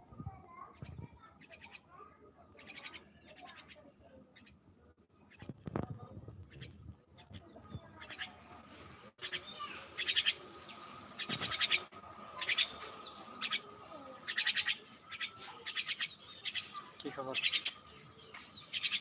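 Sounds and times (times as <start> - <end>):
myna chattering calls: 2.6 - 4.6, 6.4 - 8.4, 9.2 - 19.0.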